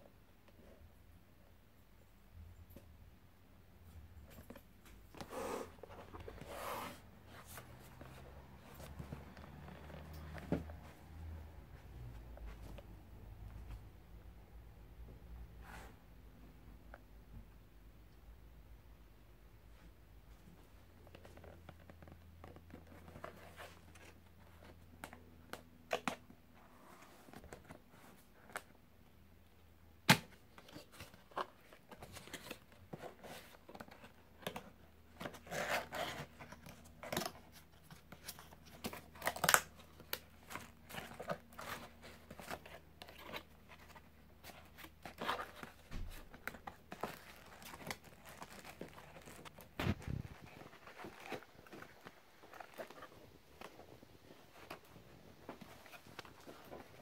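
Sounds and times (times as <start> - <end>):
cardboard box rustling and tearing: 30.6 - 53.2.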